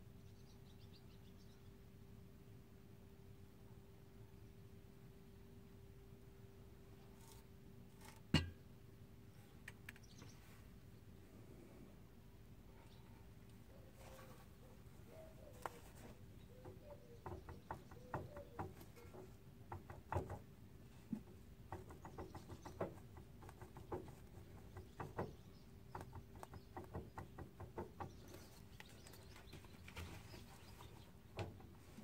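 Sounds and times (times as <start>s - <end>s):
faint clicks and clunks of joint: 9.6s - 10.4s.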